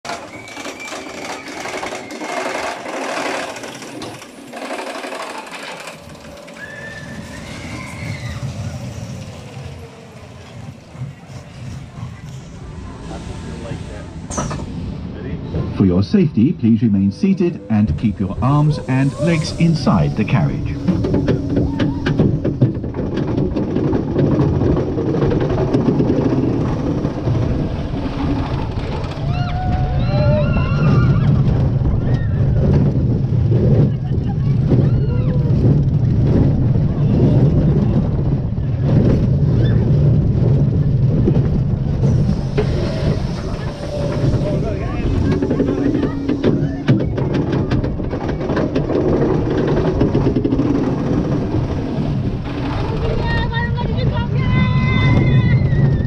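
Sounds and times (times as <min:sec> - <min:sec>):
roller coaster rattling on track: 0:00.0 - 0:56.0
low rumble: 0:05.8 - 0:56.0.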